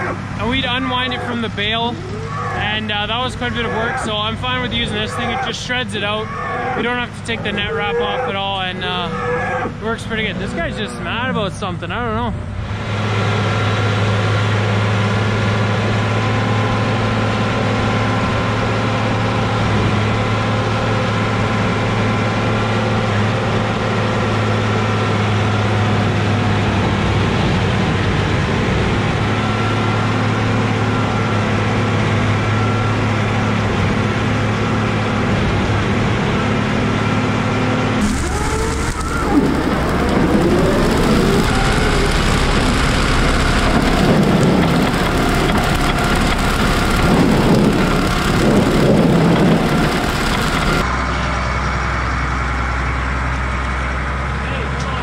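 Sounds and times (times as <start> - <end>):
tractor diesel engine running: 0.0 - 55.0
shredded straw rushing: 38.0 - 50.8.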